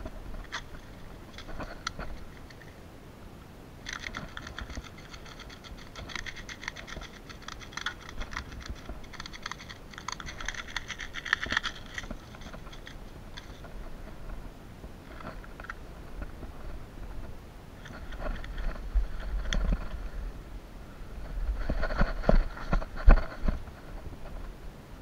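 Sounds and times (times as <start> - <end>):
small plastic clicks and rattles: 3.9 - 13.7.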